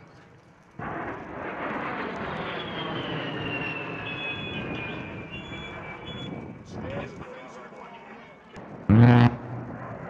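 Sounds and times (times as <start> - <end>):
jet passing overhead: 9.3 - 10.0.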